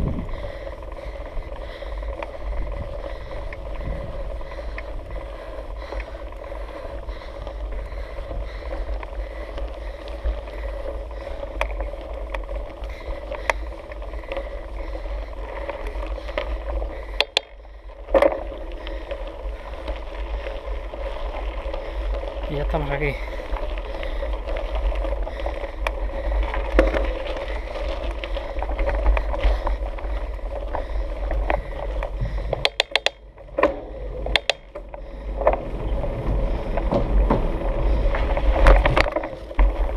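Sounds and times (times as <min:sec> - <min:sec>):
bike tyres rumbling on gravel: 0:00.0 - 0:39.9
wind: 0:00.0 - 0:39.9
small clicks: 0:17.1 - 0:19.0, 0:30.8 - 0:35.6.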